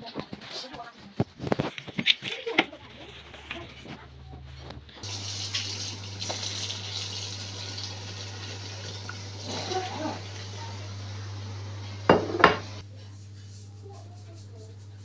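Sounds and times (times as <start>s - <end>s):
tap water running into bowl: 5.0s - 10.7s.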